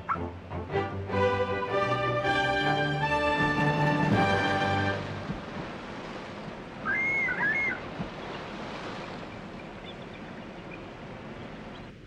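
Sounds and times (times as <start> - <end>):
river water rushing: 0.0 - 12.0
eagle whistled chattering call: 6.8 - 7.8.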